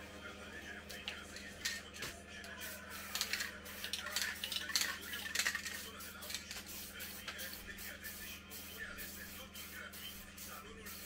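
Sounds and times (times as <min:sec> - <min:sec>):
spray can hissing: 0:02.6 - 0:11.0
mixing ball rattling in can: 0:03.2 - 0:05.8.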